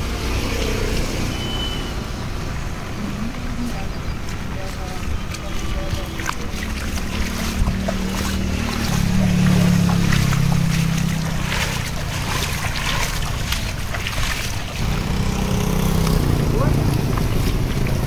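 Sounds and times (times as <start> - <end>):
vehicle engine humming: 0.0 - 18.0
heavy rain: 7.4 - 18.0.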